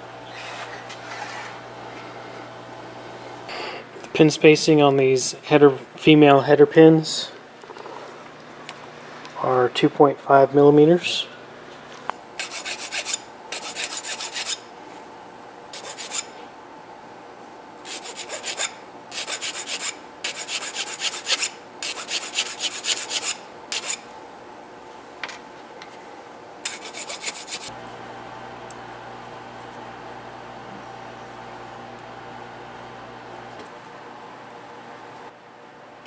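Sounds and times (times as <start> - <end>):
file rasping on plastic: 12.4 - 14.6, 15.8 - 16.3, 17.9 - 24.0, 26.6 - 27.7.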